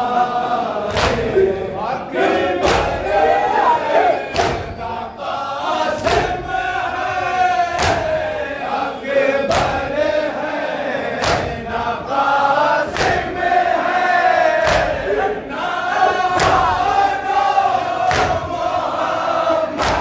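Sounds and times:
men chanting in unison: 0:00.0 - 0:20.0
hands slapping chests: 0:00.9 - 0:01.3, 0:02.6 - 0:03.0, 0:04.3 - 0:04.8, 0:06.0 - 0:06.4, 0:07.7 - 0:08.2, 0:09.5 - 0:09.8, 0:11.2 - 0:11.6, 0:12.9 - 0:13.3, 0:14.6 - 0:15.0, 0:16.3 - 0:16.8, 0:18.1 - 0:18.6, 0:19.7 - 0:20.0.

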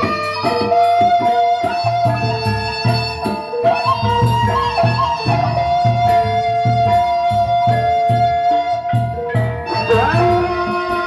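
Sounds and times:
drum beats: 0:00.0 - 0:11.0
held wavering melody: 0:00.0 - 0:11.0.

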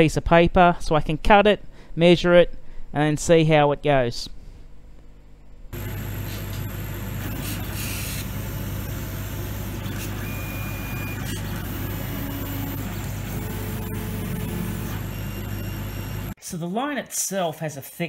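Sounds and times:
laser cutter humming: 0:05.8 - 0:16.4
stepper motor whines: 0:05.8 - 0:16.4.

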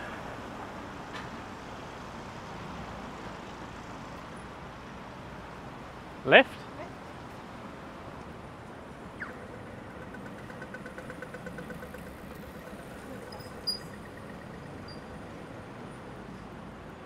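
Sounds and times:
street traffic: 0:00.0 - 0:17.0
crossing signal rapid ticking: 0:09.1 - 0:15.7.

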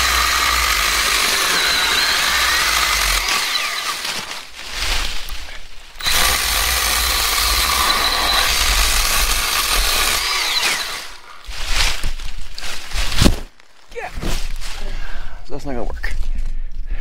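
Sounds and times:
battery chainsaw cutting log: 0:00.0 - 0:04.1, 0:06.0 - 0:11.2.

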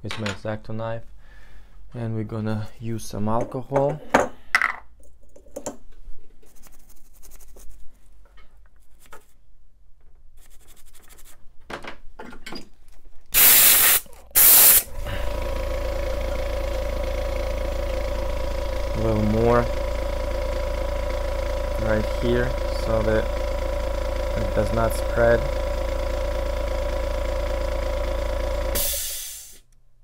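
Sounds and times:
hissing spray: 0:13.4 - 0:15.5, 0:28.7 - 0:29.6
machine hum with tone: 0:14.4 - 0:29.6.

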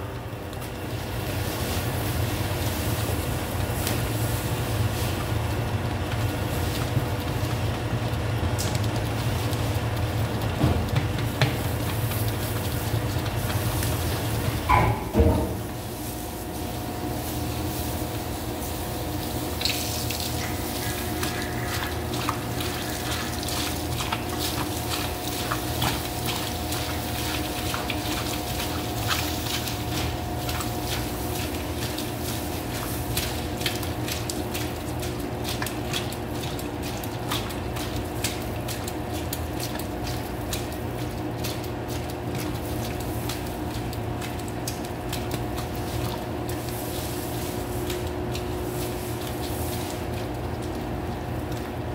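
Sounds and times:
dough mixer motor humming: 0:00.0 - 0:14.7, 0:18.0 - 0:46.6
dough slapping against steel bowl: 0:10.4 - 0:15.7, 0:20.3 - 0:46.8.

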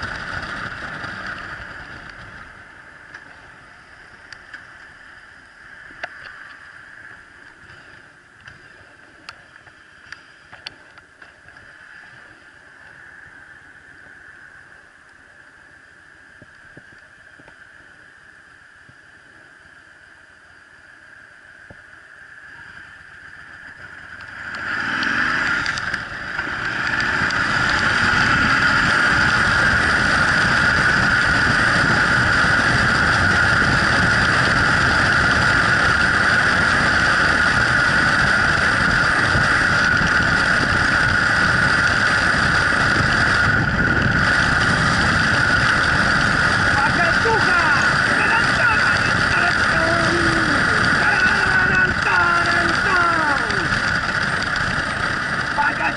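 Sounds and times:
motorcycle engine accelerating: 0:00.0 - 0:08.0, 0:22.5 - 0:55.9.

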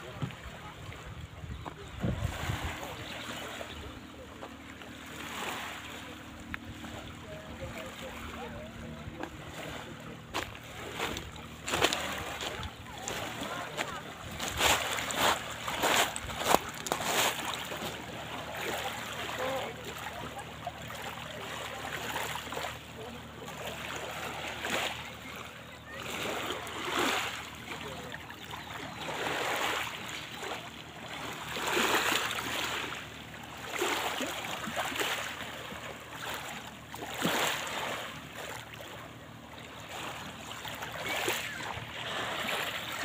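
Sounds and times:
waves lapping on pebble shore: 0:05.1 - 0:06.0, 0:09.2 - 0:20.4, 0:21.0 - 0:28.2, 0:29.0 - 0:38.6.

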